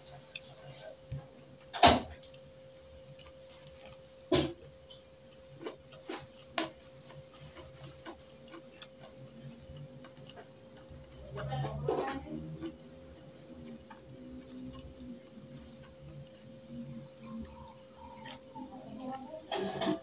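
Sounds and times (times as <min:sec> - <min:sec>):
crickets chirping: 0:00.0 - 0:20.0
person chewing food: 0:03.0 - 0:11.5, 0:12.6 - 0:18.5.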